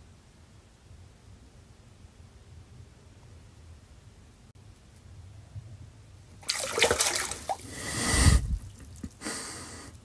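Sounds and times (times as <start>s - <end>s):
animal splashing in water: 6.4s - 7.9s.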